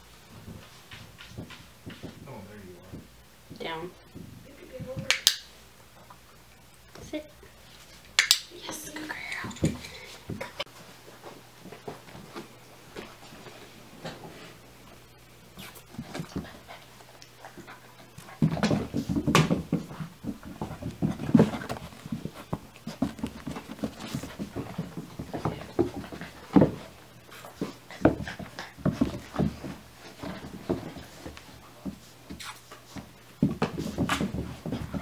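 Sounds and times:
puppy panting: 20.0s - 31.8s.

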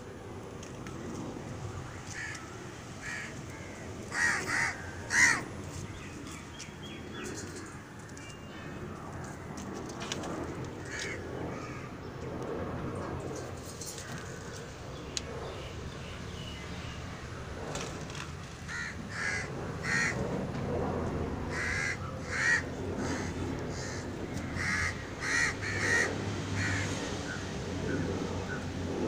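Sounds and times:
crow cawing: 2.1s - 5.5s, 10.8s - 11.9s, 18.7s - 20.2s, 21.5s - 27.0s.

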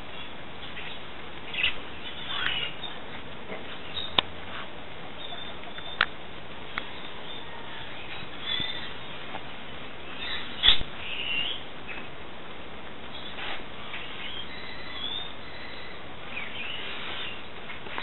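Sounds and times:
steady hiss: 0.0s - 18.0s
puppies squeaking: 5.2s - 6.1s.

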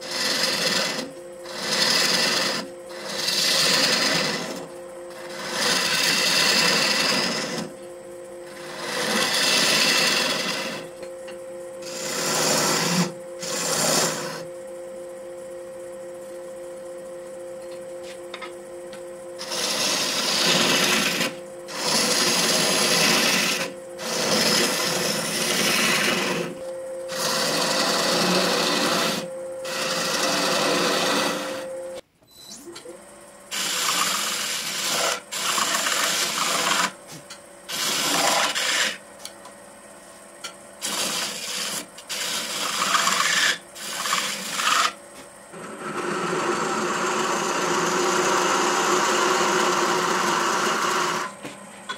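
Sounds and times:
turning tool scraping wood: 0.0s - 7.8s, 8.4s - 11.0s, 11.8s - 14.5s, 19.4s - 31.7s, 33.5s - 39.0s, 40.8s - 45.0s, 45.6s - 51.3s
lathe motor hum: 0.0s - 32.0s, 33.1s - 39.6s, 40.8s - 51.9s.

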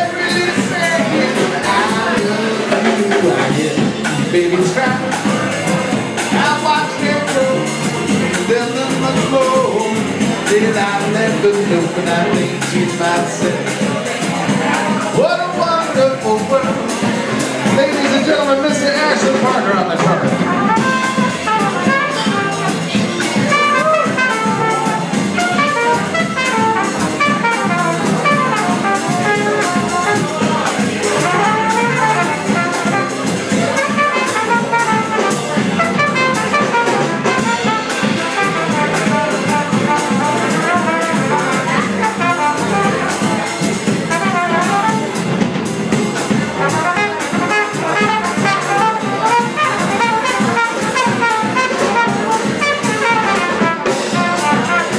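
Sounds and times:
jazz band playing: 0.0s - 54.9s
trumpet solo: 18.9s - 45.4s, 46.2s - 54.9s.

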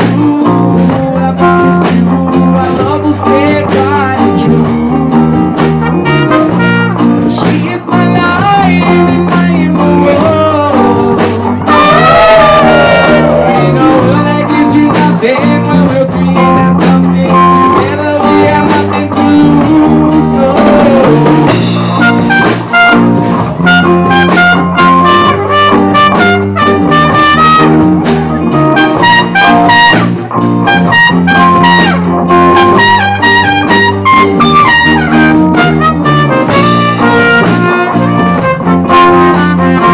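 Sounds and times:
acoustic guitar: 0.0s - 39.9s
drums with steady beat: 0.0s - 39.9s
electric bass: 0.0s - 39.9s
trumpet line: 5.8s - 7.3s, 11.6s - 14.3s, 21.9s - 39.9s.

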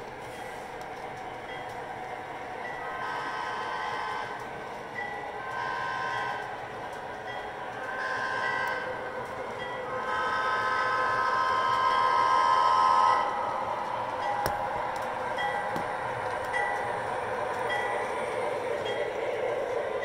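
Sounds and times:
model train running on track: 0.0s - 20.0s
model locomotive horn chord: 2.9s - 4.4s, 5.5s - 6.4s, 8.0s - 8.8s, 10.0s - 13.3s
locomotive bell dinging: 14.2s - 17.1s, 17.7s - 18.2s.

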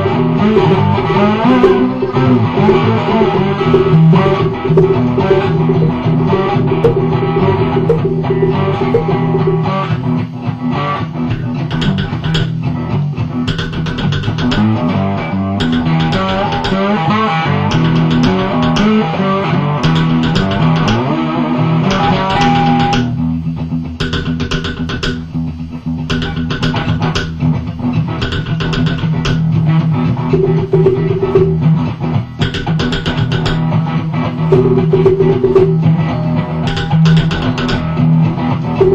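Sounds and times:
guitar droning sliding notes: 0.0s - 23.9s, 28.8s - 38.9s
log drum strikes: 0.6s - 10.0s, 11.3s - 12.7s, 13.5s - 14.9s, 15.6s - 16.9s, 17.7s - 19.2s, 19.8s - 21.1s, 24.0s - 25.4s, 26.1s - 27.6s, 28.2s - 29.6s, 30.3s - 31.8s, 32.4s - 33.8s, 34.5s - 36.1s, 36.7s - 38.0s.

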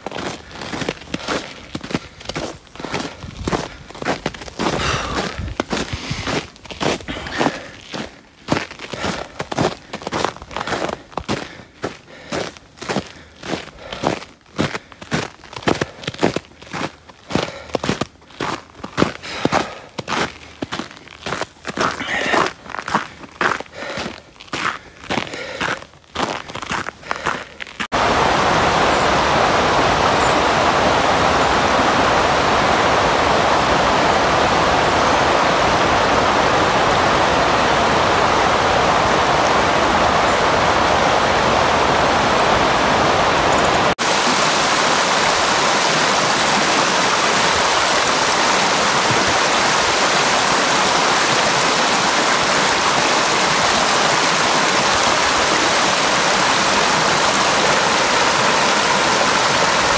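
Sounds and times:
stream flowing over stones: 0.0s - 11.8s, 27.8s - 59.9s.

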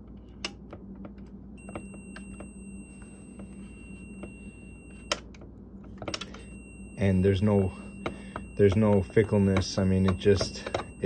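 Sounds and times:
continuity beeper steady beep: 1.6s - 5.3s, 6.0s - 11.0s.

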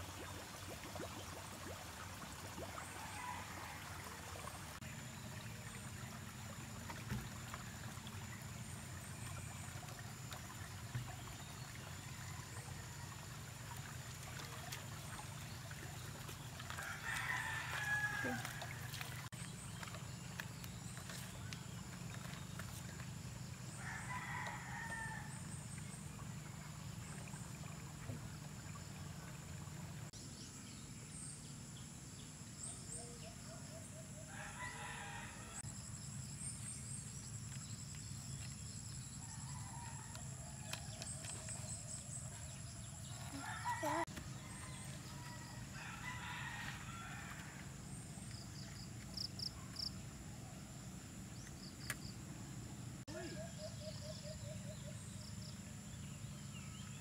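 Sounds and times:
roosters crowing: 16.8s - 18.8s, 43.4s - 47.6s.

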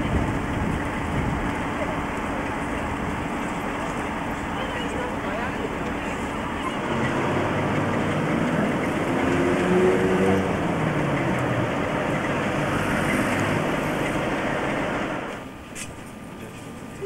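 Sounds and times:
vehicle engine running: 0.0s - 15.6s.

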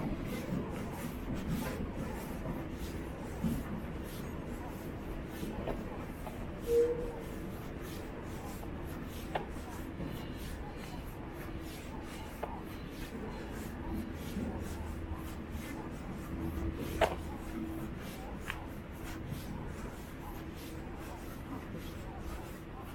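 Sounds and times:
short squeak: 6.6s - 7.2s.

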